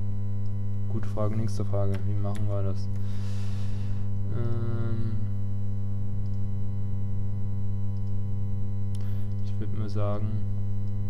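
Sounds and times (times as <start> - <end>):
electrical mains hum: 0.0 - 11.0
breath: 3.0 - 4.2, 9.0 - 9.4
person humming: 4.3 - 5.3.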